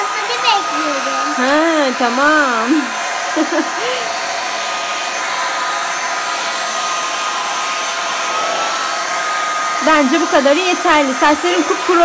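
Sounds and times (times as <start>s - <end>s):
hair dryer running: 0.0s - 12.0s.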